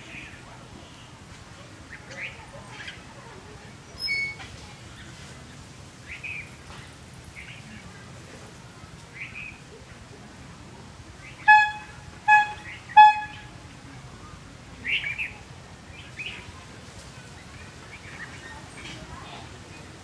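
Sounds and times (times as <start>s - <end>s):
birds chirping: 11.2s - 13.5s.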